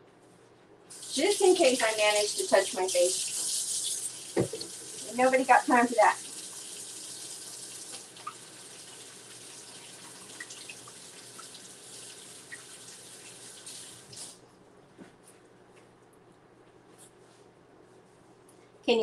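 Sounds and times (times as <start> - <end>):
faucet running: 0.9 - 14.4.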